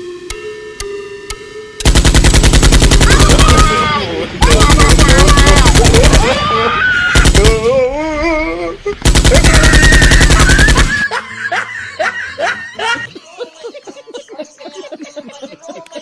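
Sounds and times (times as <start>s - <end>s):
fake machine-gun fire: 1.8s - 6.5s, 7.1s - 7.7s, 9.0s - 11.0s.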